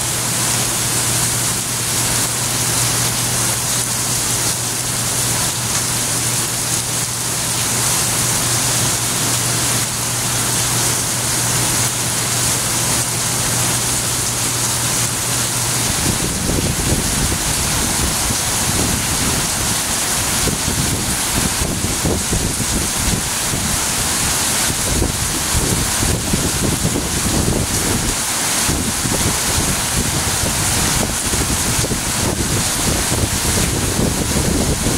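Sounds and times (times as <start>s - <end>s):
heavy rain falling: 0.0s - 34.9s
wind buffeting microphone: 15.9s - 34.9s.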